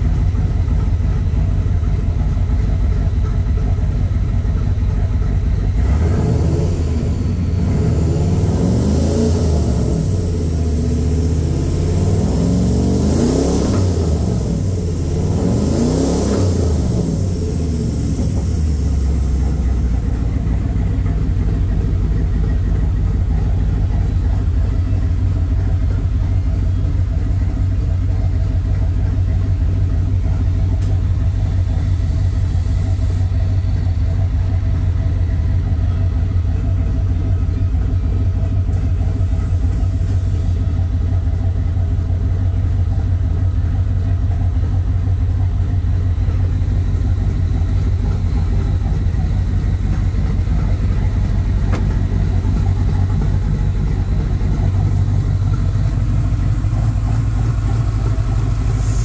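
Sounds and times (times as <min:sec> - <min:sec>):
engine idling and revving: 0:00.0 - 0:59.0.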